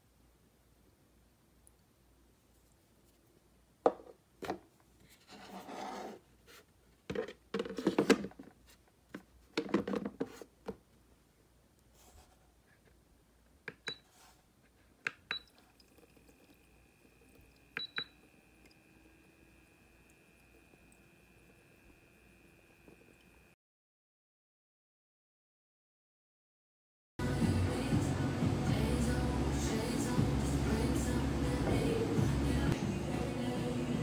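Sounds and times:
plastic knocks and scraping: 7.1s - 10.8s
faint steady high tone: 15.3s - 23.6s
short beeps: 17.8s - 18.2s.

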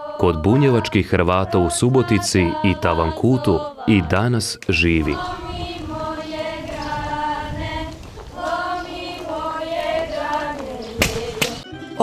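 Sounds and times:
girls singing together: 0.0s - 4.2s, 4.8s - 11.6s.

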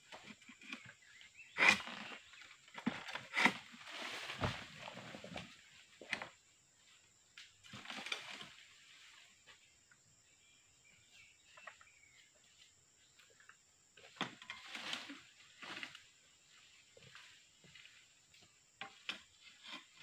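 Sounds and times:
sickle rustling among palm fronds: 1.8s - 6.0s, 7.6s - 9.7s, 14.3s - 18.2s
faint bird chirps: 9.0s - 13.6s.

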